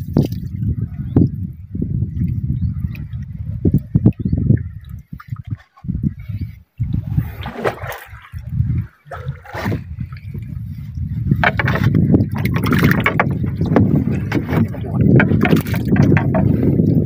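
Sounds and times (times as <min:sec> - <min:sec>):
water splashing against boat hull: 0:06.9 - 0:17.0.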